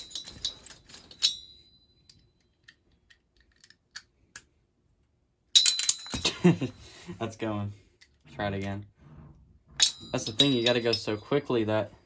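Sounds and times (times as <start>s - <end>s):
ringing metallic clink: 0.0s - 2.5s, 9.8s - 11.4s.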